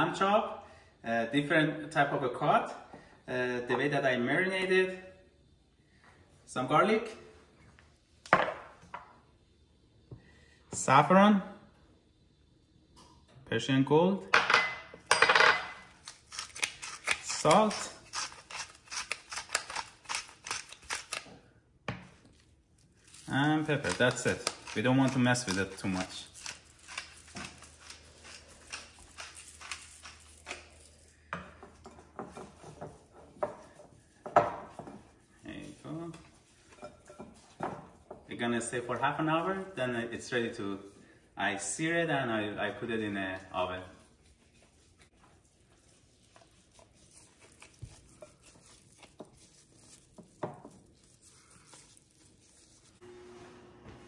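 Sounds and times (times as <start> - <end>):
pepper mill grinding: 15.9 - 21.2, 23.0 - 31.2
hands handling meat in bowl: 44.2 - 53.0.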